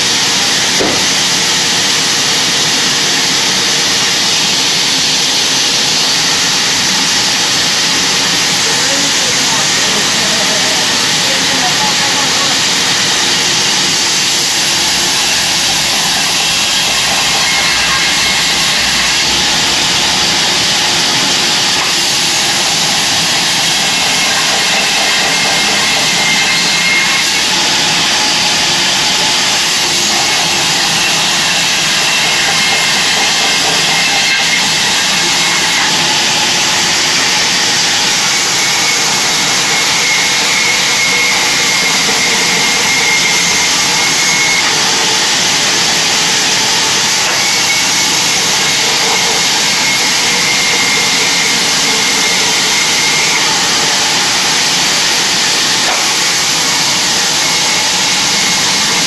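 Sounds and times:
bandsaw ripping wood: 0.6 - 1.4.

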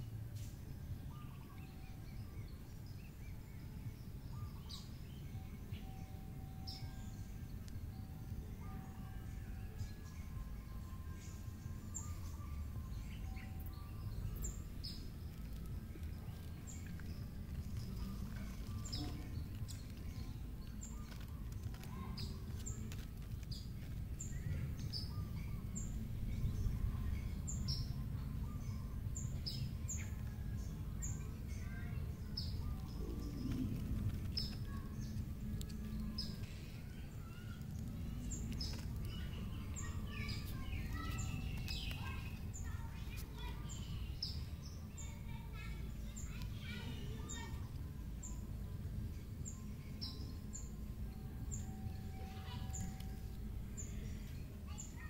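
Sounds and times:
low rumble: 23.1 - 41.6.

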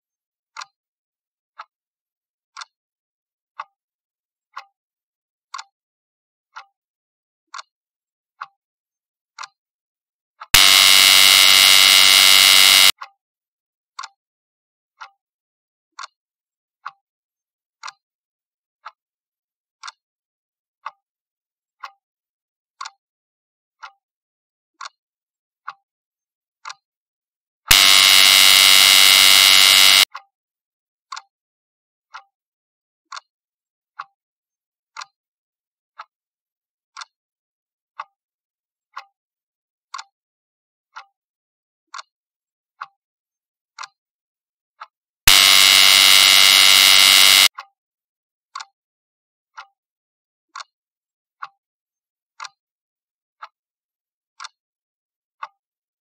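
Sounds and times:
loud steady buzzer: 10.6 - 12.9, 27.7 - 30.1, 45.3 - 47.5.

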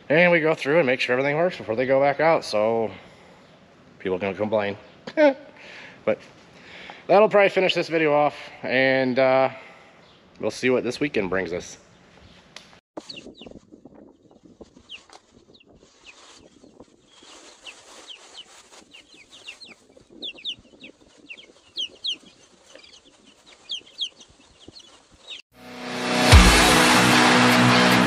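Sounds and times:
chicks peeping: 13.0 - 25.4.

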